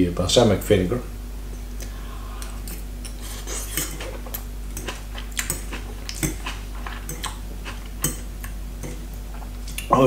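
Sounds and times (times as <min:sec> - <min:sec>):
steady low hum: 0:00.0 - 0:10.0
fork scraping ceramic bowl: 0:03.1 - 0:09.1.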